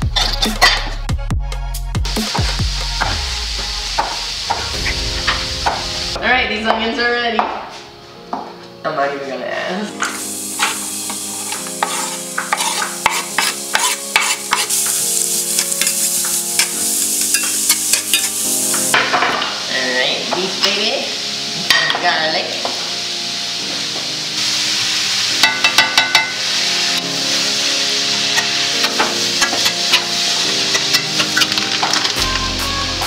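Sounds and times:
onions sizzling in oil: 2.0s - 7.5s, 9.2s - 33.0s
utensils clicking against pan: 10.0s - 18.4s, 28.4s - 32.3s
spoon stirring and scraping pan: 10.1s - 18.4s, 28.2s - 32.2s.

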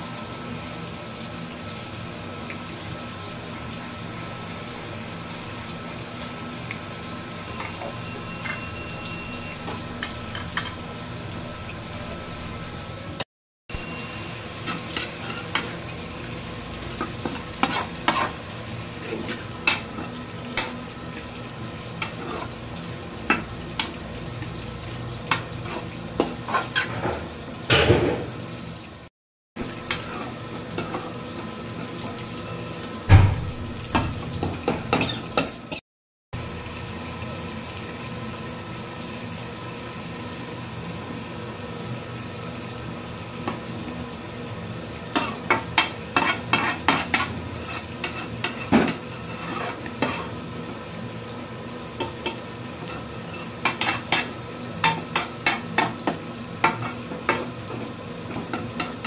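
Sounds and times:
faint frying sizzle: 0.0s - 35.8s, 36.4s - 59.0s
spoon scraping a metal pan: 14.5s - 15.9s, 16.8s - 20.9s, 22.0s - 22.6s, 25.3s - 27.2s, 29.9s - 31.1s, 34.0s - 35.5s, 45.1s - 50.4s, 52.0s - 57.5s.

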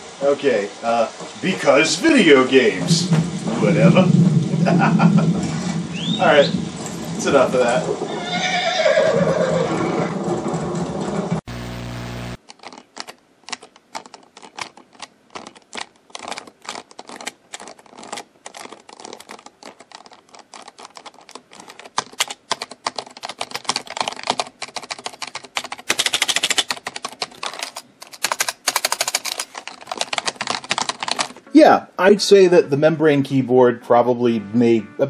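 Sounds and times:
static hiss: 0.0s - 9.6s, 11.4s - 12.4s
typing on computer keyboard: 12.4s - 31.4s.

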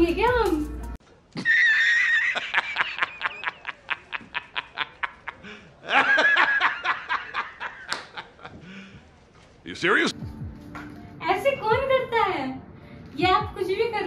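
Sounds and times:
man laughing hard: 1.4s - 8.6s.

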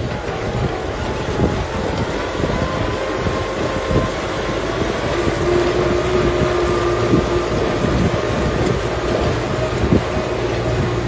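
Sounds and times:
tractor diesel engine under load: 0.0s - 11.0s.

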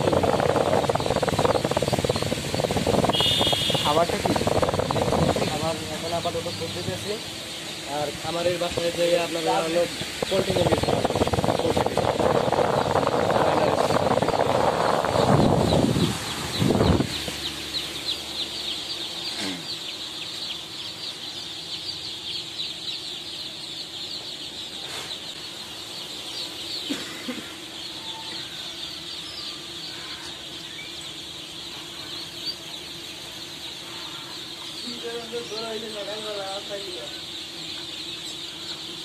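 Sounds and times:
ducklings peeping: 0.0s - 39.0s
electric fan hum: 0.0s - 39.0s.

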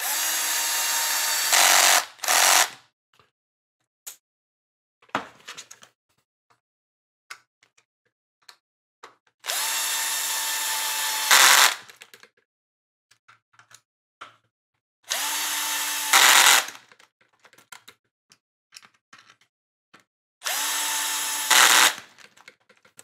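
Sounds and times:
cordless screwdriver motor whine: 0.0s - 2.7s, 9.5s - 11.8s, 15.1s - 16.7s, 20.4s - 22.0s
clicks of parts handled: 18.7s - 20.1s.

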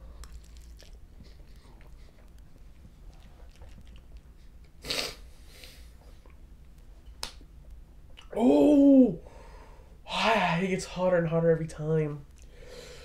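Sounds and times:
man chewing: 0.0s - 6.4s.

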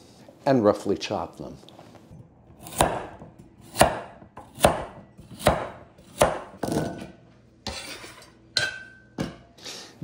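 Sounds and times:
knife chopping on wooden board: 2.6s - 7.0s
glass clink: 8.6s - 9.4s.

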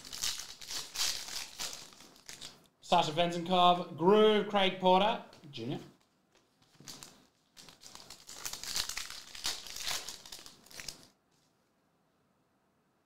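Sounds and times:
foil wrapper crinkling and tearing: 0.0s - 2.6s, 6.7s - 11.2s.

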